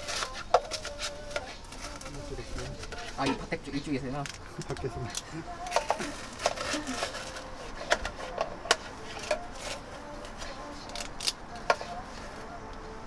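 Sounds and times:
kitchen utensils clicking and clinking: 4.2 - 9.8.

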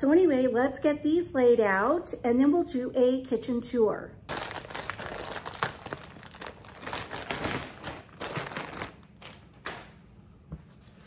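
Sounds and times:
plastic packaging crinkling: 4.3 - 10.0.

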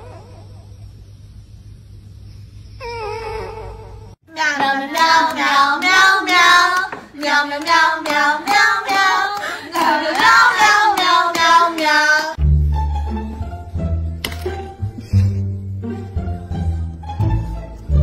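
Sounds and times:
child singing: 4.3 - 12.4.

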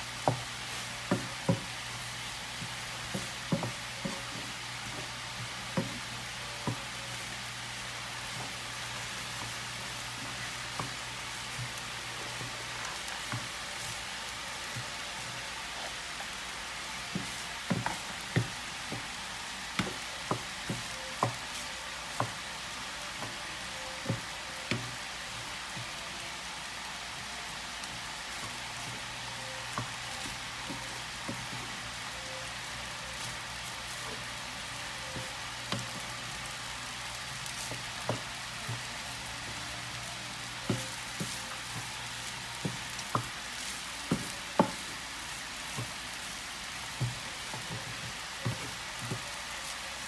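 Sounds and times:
rice sizzling in a frying pan: 0.0 - 50.0
spatula knocking on pan: 0.2 - 1.7, 2.6 - 7.3, 17.1 - 19.1, 40.7 - 44.9.

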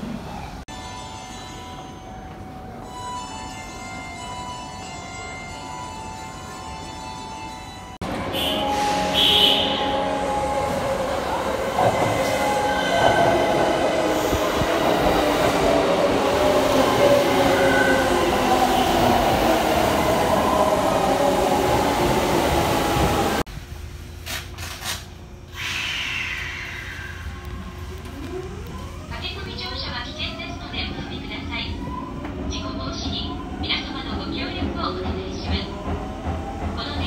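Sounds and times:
train wheels rumbling and squealing: 0.2 - 23.4, 25.4 - 29.1.

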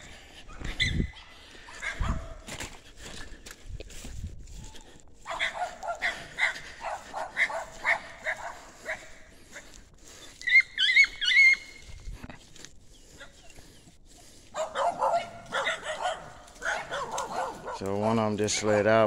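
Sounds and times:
dog yelping: 0.5 - 2.5, 5.2 - 9.2, 10.4 - 11.9, 14.5 - 17.8
dogs barking: 0.5 - 2.5, 5.2 - 9.8, 13.0 - 19.0.

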